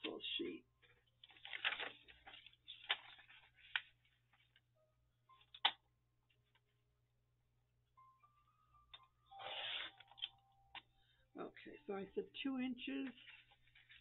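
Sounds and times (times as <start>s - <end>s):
paper rustling: 0.8s - 4.6s, 13.0s - 14.0s.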